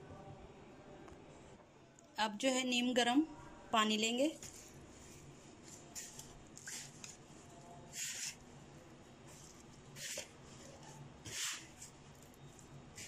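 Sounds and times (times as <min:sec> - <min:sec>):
faint low hum: 0:00.0 - 0:11.2
hand swishing dough: 0:04.4 - 0:08.4, 0:09.2 - 0:12.0.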